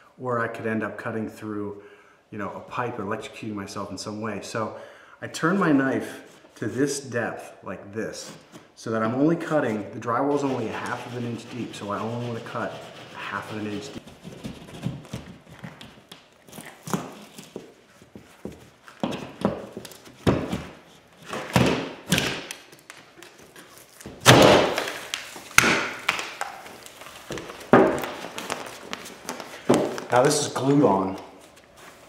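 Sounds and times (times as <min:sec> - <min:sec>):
drywall being pried and broken: 0:12.2 - 0:28.6.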